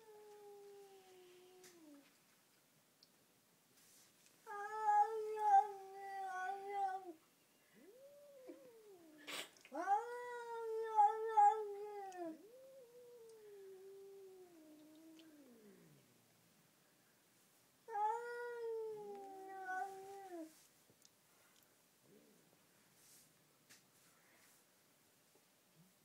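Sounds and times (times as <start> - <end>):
cat yowling: 4.5 - 7.2, 7.8 - 16.0, 17.9 - 20.5.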